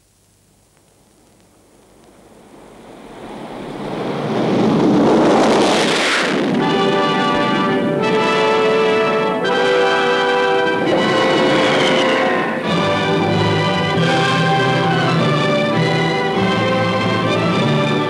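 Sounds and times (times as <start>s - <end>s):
propeller aircraft passing overhead: 2.4s - 18.0s
orchestral music with brass: 6.4s - 18.0s.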